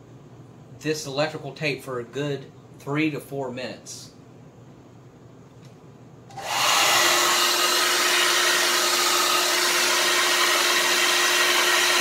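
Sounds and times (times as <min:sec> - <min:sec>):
hair dryer blowing: 0:06.3 - 0:12.0.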